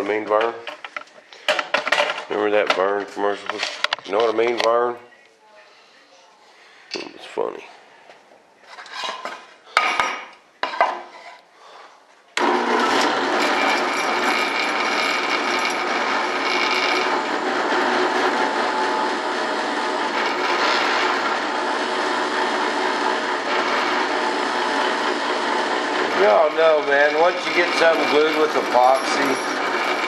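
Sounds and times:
drill press motor humming: 12.4 - 30.0.

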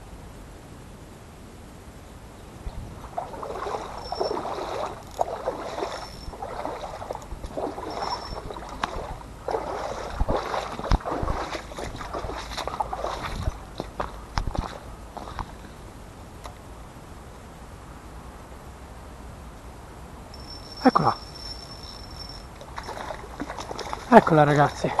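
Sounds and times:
footsteps rustling through dry leaves: 3.0 - 15.3.

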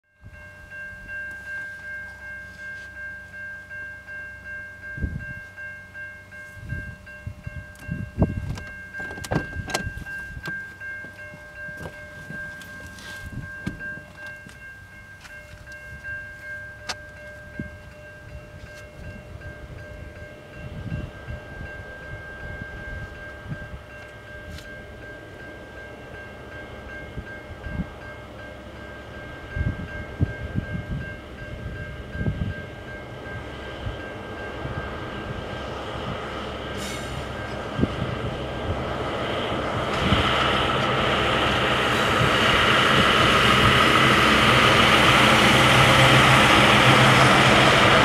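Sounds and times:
rails ringing with metallic tones: 0.1 - 48.0
wind gusts on microphone: 5.0 - 5.5, 6.5 - 10.5, 11.7 - 14.1, 17.4 - 24.6, 27.0 - 28.0, 29.3 - 48.0.

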